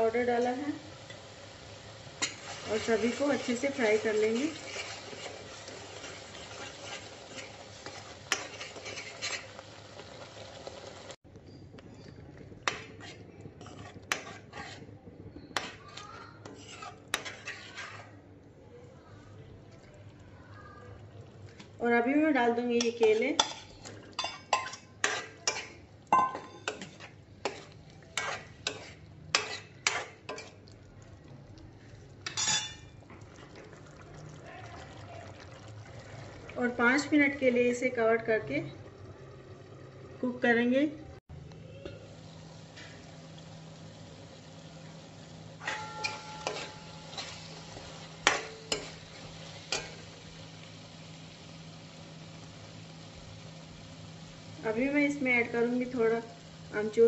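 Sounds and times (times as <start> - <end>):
metal spoon scraping metal pan: 2.2 - 9.6, 12.6 - 18.2, 22.8 - 30.6, 32.2 - 33.0, 45.6 - 50.0
metal utensils clinking in pan: 22.7 - 30.6, 32.2 - 33.0, 45.6 - 50.1.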